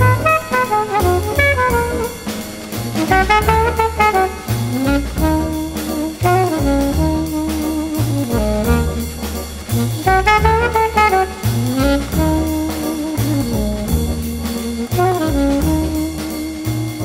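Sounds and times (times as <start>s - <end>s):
jazz music with brass melody: 0.0s - 17.0s.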